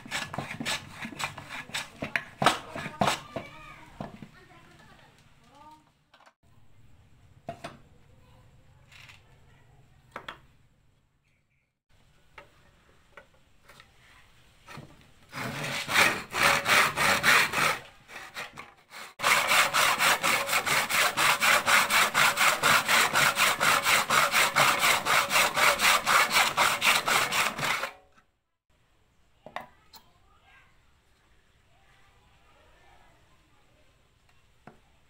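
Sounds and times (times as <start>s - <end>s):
handsaw cutting wood: 0.0s - 3.4s, 15.2s - 28.0s.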